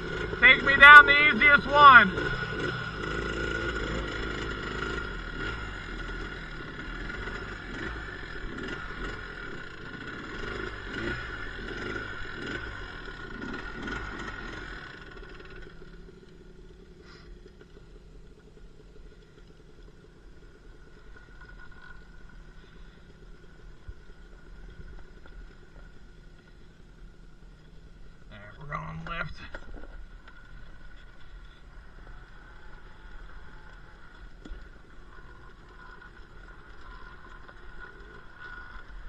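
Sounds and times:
atv engines running: 0.0s - 39.0s.

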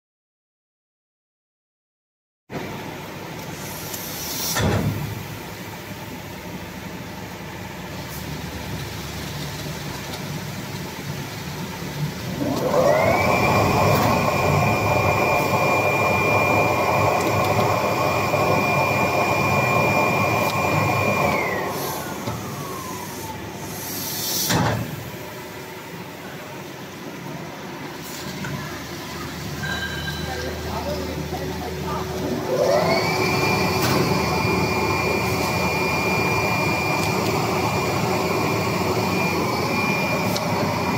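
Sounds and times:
burst of hiss: 3.5s - 4.9s, 23.0s - 24.7s
machine mechanical drone: 8.0s - 40.9s
machine whine: 11.0s - 25.0s, 27.8s - 40.9s.

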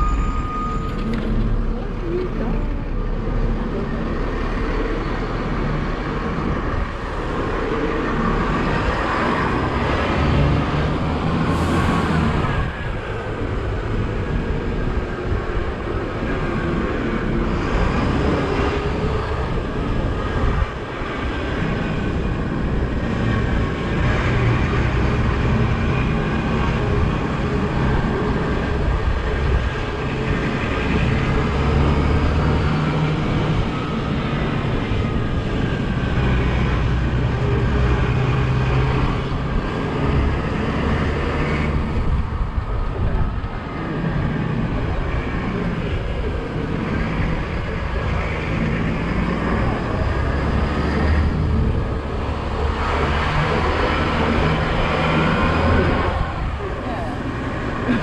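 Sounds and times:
bus diesel engine drone: 0.0s - 58.0s
wind and road noise: 0.0s - 58.0s.

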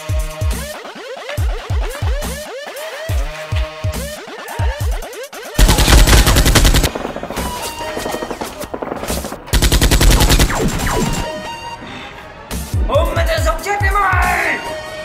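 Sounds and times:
automatic gunfire bursts: 5.6s - 8.4s, 9.5s - 11.3s.

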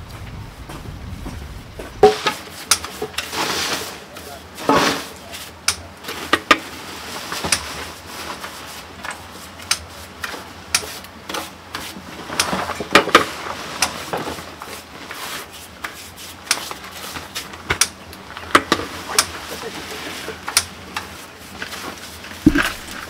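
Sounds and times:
sharp taps and clicks: 22.5s - 23.0s.

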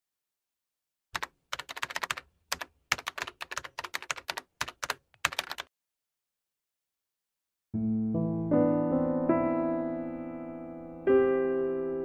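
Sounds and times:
typing on computer keyboard: 1.2s - 5.7s.

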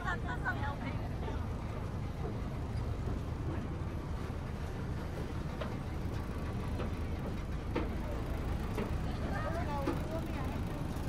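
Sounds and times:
boat engine rumble: 0.0s - 11.0s.

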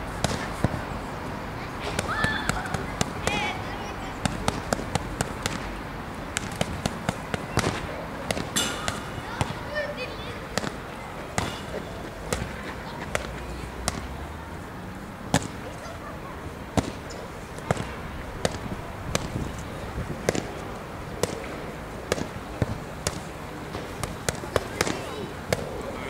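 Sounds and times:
boxing gloves slapping focus mitts: 0.2s - 0.8s, 4.2s - 9.6s, 10.4s - 14.2s, 15.3s - 15.6s, 16.7s - 25.8s.

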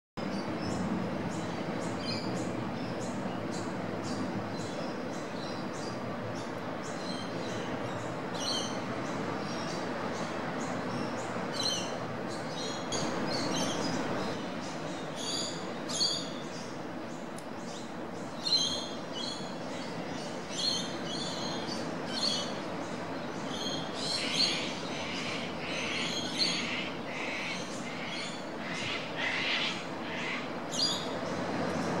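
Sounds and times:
surf washing: 18.9s - 32.0s
harsh lower bird calls: 23.4s - 31.2s.

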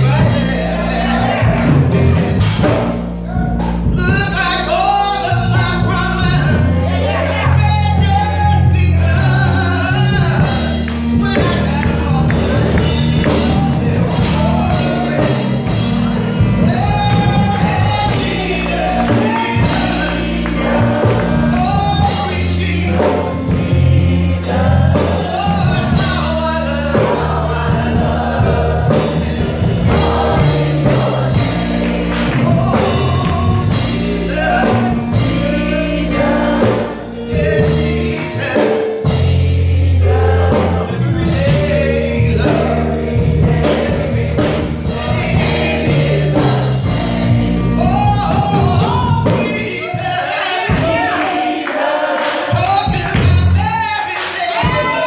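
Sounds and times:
keyboard bass notes: 0.0s - 51.3s, 52.0s - 54.0s
drum kit beat: 0.0s - 55.0s
gospel choir singing: 0.0s - 55.0s.

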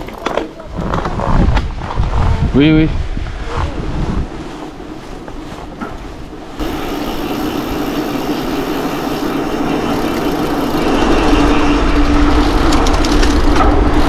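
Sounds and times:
wind on microphone: 0.0s - 14.0s
bike tyres humming: 4.4s - 14.0s.

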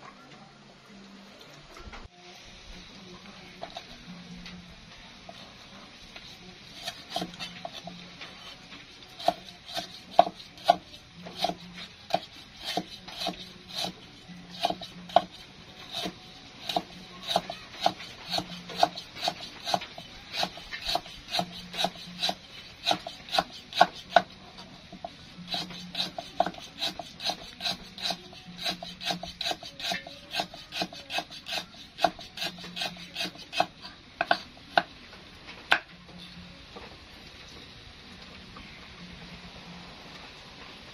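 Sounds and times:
cleaver chopping on wooden block: 9.2s - 10.8s, 11.4s - 13.9s, 14.5s - 24.3s, 25.5s - 34.9s.

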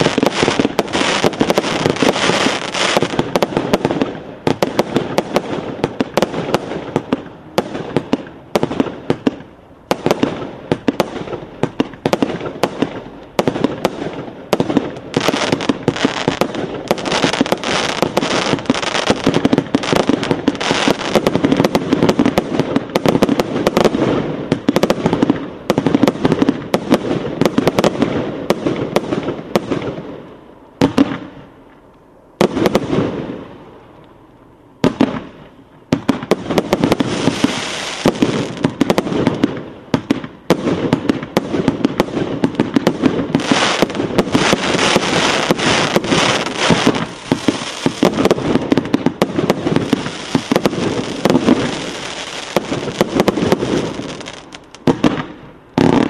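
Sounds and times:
fireworks shots and crackling: 0.0s - 31.6s, 32.4s - 33.7s, 34.8s - 56.0s.

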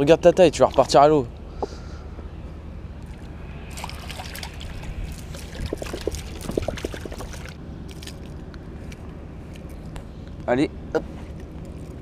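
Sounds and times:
water splashing and trickling: 0.0s - 1.4s, 3.0s - 9.0s.

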